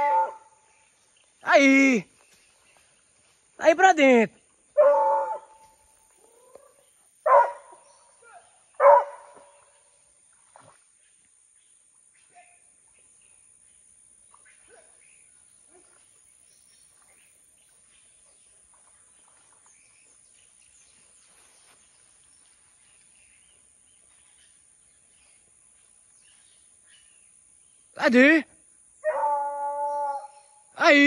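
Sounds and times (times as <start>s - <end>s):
steady high-pitched hiss: 9.3s - 31.0s.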